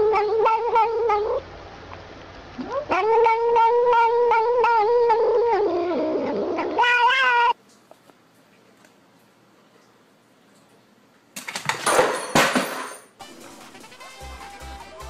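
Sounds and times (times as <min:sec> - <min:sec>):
cat yowling: 0:00.0 - 0:01.4, 0:02.6 - 0:07.6.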